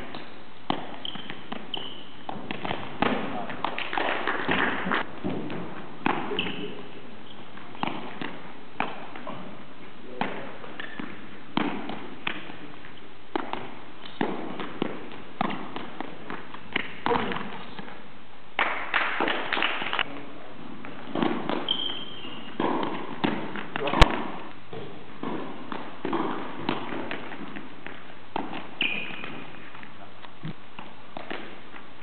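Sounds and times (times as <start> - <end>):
shoe squeaks: 0.9 - 2.3, 6.3 - 7.6, 21.6 - 22.7, 28.7 - 29.7.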